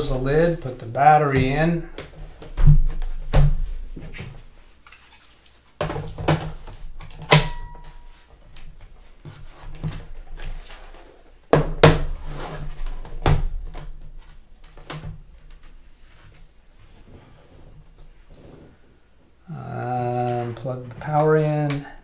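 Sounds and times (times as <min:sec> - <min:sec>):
sharp ringing click: 0:07.3 - 0:08.0.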